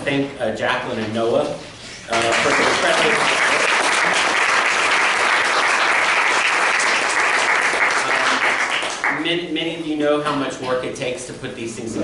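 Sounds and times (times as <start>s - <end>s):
audience applauding: 2.1s - 9.2s.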